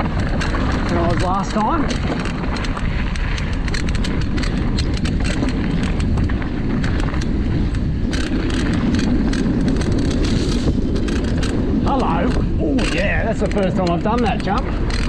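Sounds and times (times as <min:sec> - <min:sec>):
bike clicks and rattles: 0:00.0 - 0:15.0
bike tyres rolling on dirt: 0:00.0 - 0:15.0
wind rushing over microphone: 0:00.0 - 0:15.0.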